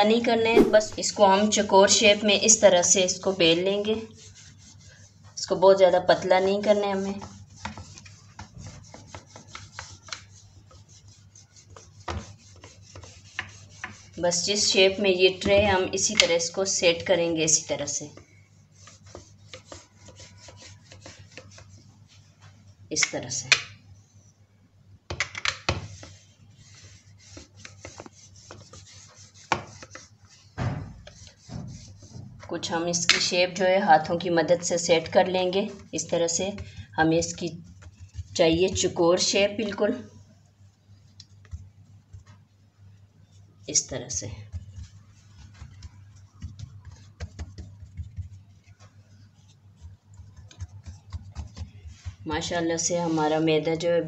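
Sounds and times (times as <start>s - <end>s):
rolling pin rubbing on dough: 0.5s - 1.1s, 1.8s - 22.7s, 25.8s - 53.5s
hands patting dough: 0.6s - 1.1s, 6.3s - 14.4s, 34.6s - 39.5s, 41.2s - 42.5s, 43.8s - 53.1s.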